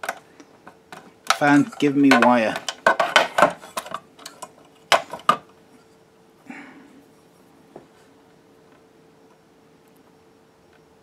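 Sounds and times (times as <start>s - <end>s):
clicks and knocks on plastic: 0.0s - 5.4s
faint steady hum: 0.0s - 11.0s.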